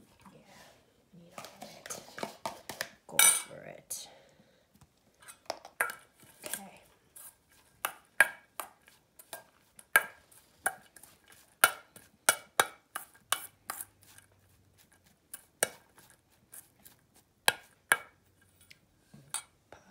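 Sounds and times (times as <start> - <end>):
spoon clinking and scraping bowl: 5.2 - 19.5.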